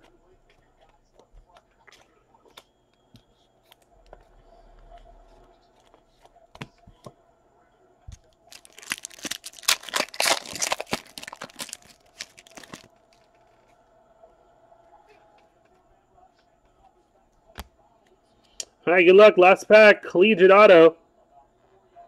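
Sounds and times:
foil wrapper tearing and crinkling: 0:08.5 - 0:13.3.

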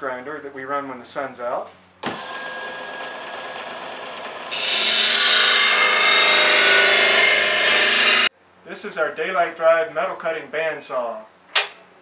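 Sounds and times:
bench grinder motor running: 0:02.0 - 0:08.3
steel grinding on wheel: 0:04.4 - 0:08.3.

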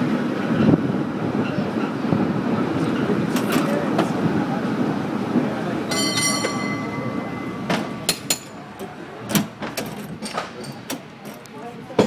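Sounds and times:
cable car rumbling and rattling: 0:00.0 - 0:12.0
high metallic ring: 0:05.9 - 0:08.6
sharp metal clanks: 0:05.9 - 0:08.6.

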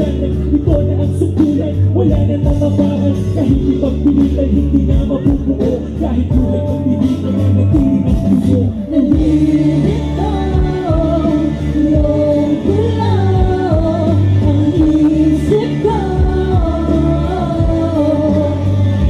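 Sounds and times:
backing track music: 0:00.0 - 0:19.0
woman singing into microphone: 0:08.5 - 0:19.0.

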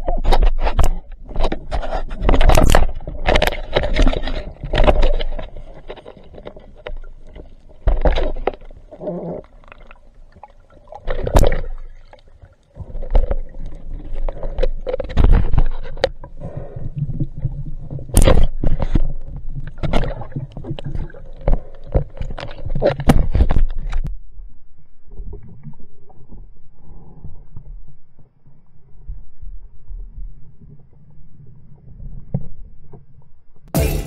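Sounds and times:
underwater water rushing: 0:02.2 - 0:15.6
bubbling water: 0:06.8 - 0:14.4.

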